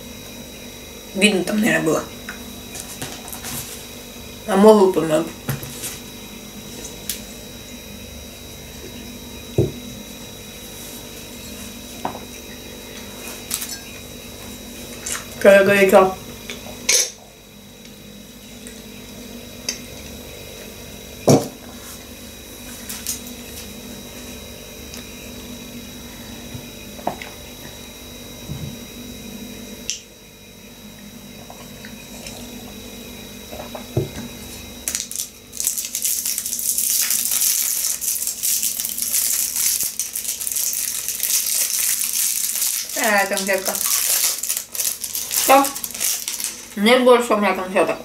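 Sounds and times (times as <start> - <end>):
glass teapot and mug clinking: 16.9 - 17.2
sweet wrapper crinkling: 34.9 - 46.8.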